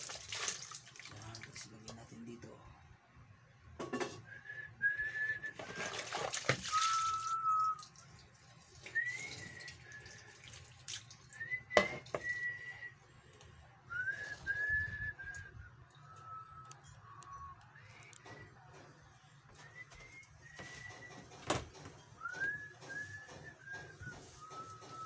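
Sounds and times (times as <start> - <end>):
water splashing in a basin: 0.0 - 2.0, 5.6 - 12.3
person whistling: 4.2 - 6.0, 6.7 - 8.0, 8.9 - 10.3, 11.4 - 13.0, 13.9 - 18.5, 19.5 - 21.3, 22.2 - 25.0.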